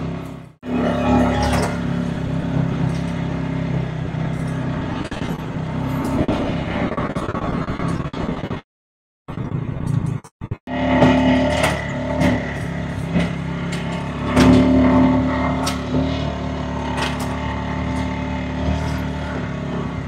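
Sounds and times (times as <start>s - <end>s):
tractor engine running: 0.0s - 8.6s, 9.3s - 20.0s.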